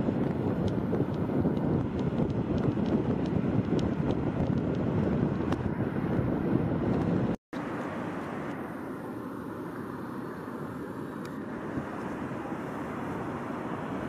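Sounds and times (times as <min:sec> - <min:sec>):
wind buffeting microphone: 0:00.0 - 0:07.4.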